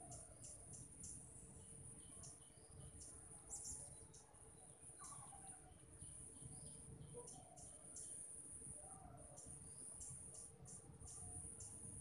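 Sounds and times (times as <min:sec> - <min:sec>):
bird chirps: 0:00.0 - 0:08.2.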